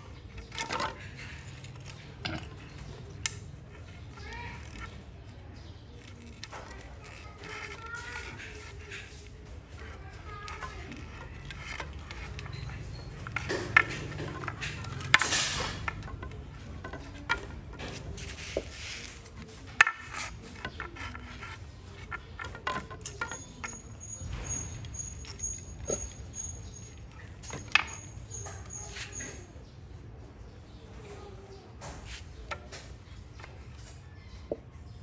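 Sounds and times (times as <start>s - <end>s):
bamboo poles knocking: 0.4s - 3.5s, 10.3s - 23.8s.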